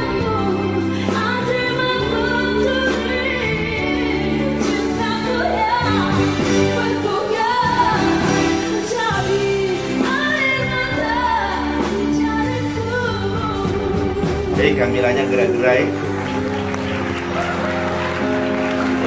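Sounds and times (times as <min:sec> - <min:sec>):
woman singing into a microphone: 0:00.0 - 0:14.9
band accompaniment: 0:00.0 - 0:19.0.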